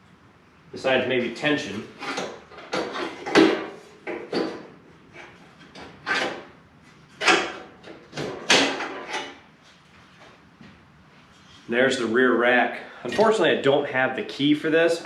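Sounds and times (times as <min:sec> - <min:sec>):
metal rack clanking and scraping: 0:01.9 - 0:06.5, 0:07.1 - 0:09.4.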